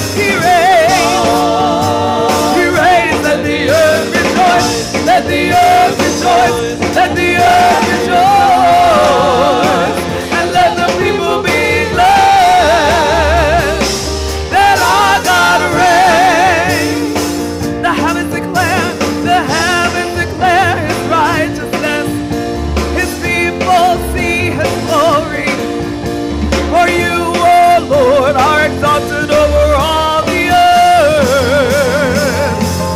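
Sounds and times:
woman singing gospel song: 0.0 - 17.2, 23.0 - 25.6, 26.7 - 32.6
keyboard playing chords and bass: 0.0 - 32.9.

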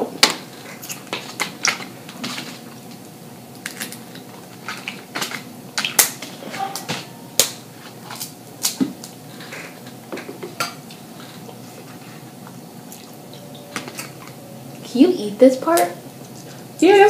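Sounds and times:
crab shells cracking: 0.2 - 9.2.

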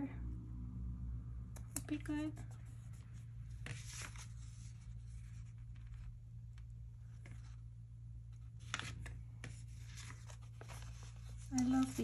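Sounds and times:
steady low hum: 0.0 - 12.0
stickers peeling and rustling: 8.4 - 12.0.

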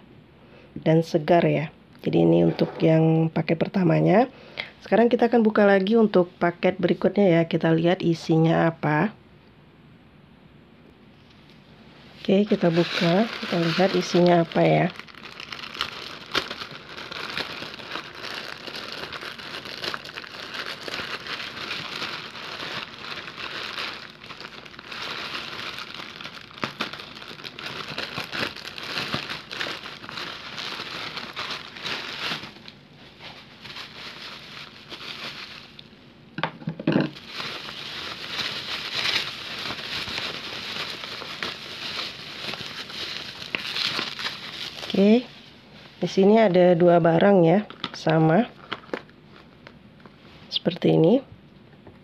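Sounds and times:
bubble wrap handled: 12.2 - 35.9, 37.0 - 45.4, 47.6 - 50.2
plastic bag crinkling: 12.2 - 35.9, 37.0 - 45.3, 47.6 - 49.8.

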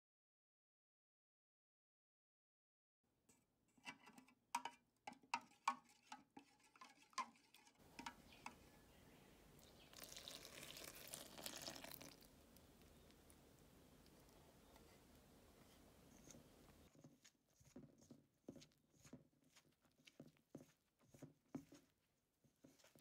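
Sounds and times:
water pouring hiss: 9.9 - 12.3.

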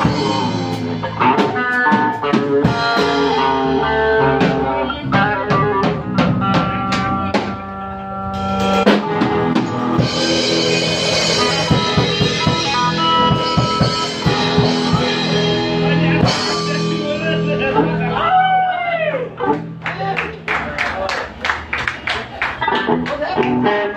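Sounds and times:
drum kit: 0.0 - 18.5
electric guitar: 0.0 - 20.5, 22.0 - 23.9.

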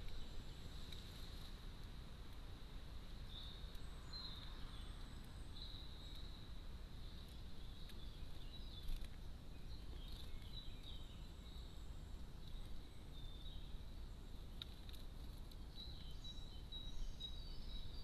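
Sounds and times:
low rumble and hiss: 0.0 - 18.0
small birds chirping: 0.0 - 18.0.

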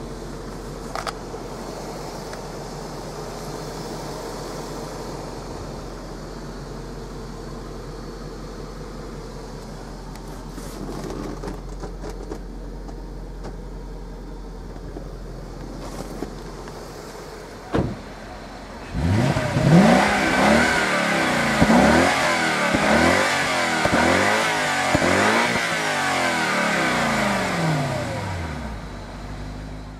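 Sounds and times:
thump: 17.7 - 18.1
car engine revving: 18.0 - 29.9.

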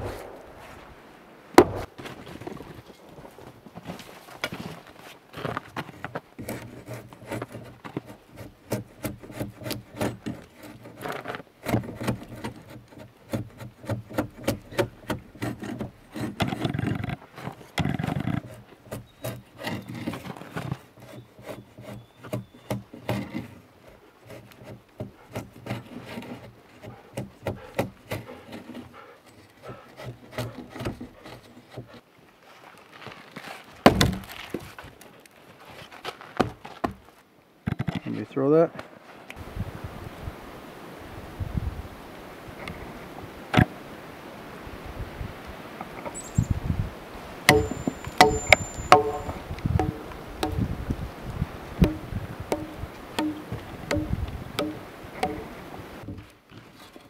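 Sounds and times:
heavy thump: 1.6 - 1.9, 47.5 - 50.7, 51.8 - 55.5
drawknife scraping wood: 5.4 - 32.1, 47.5 - 50.7, 51.8 - 57.0.

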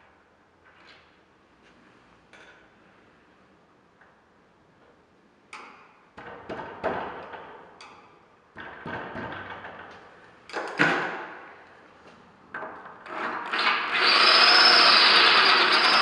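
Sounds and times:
power drill boring into screw: 13.1 - 16.0.

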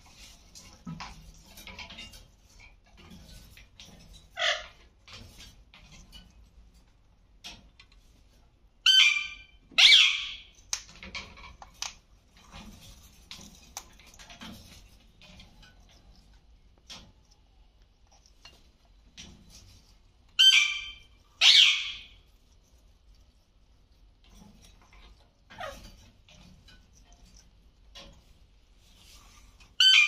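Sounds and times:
parakeets squawking: 8.9 - 10.4, 20.4 - 22.2, 29.8 - 30.0.

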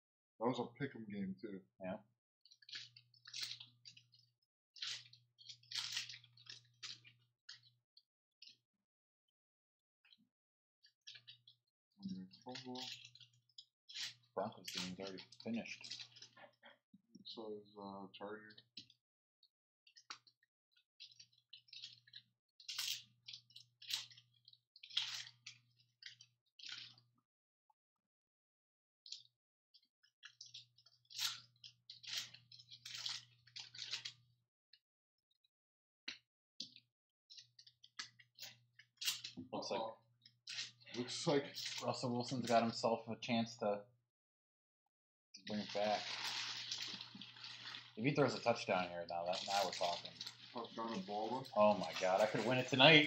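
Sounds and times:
foil wrapper tearing and crumpling: 45.5 - 52.9.

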